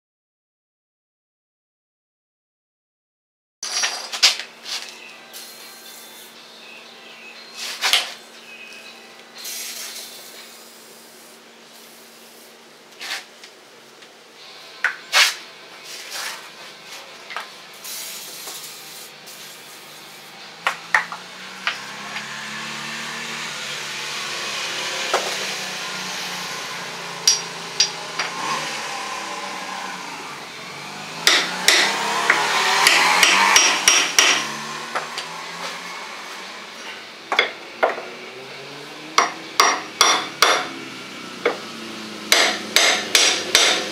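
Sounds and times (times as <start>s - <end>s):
hammer striking metal bolt: 31.2s - 34.5s, 39.2s - 40.7s, 42.3s - 43.9s.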